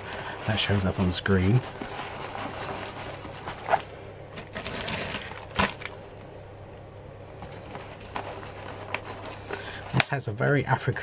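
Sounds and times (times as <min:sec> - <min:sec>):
paper napkin rustling: 0:00.0 - 0:06.0, 0:07.4 - 0:10.0.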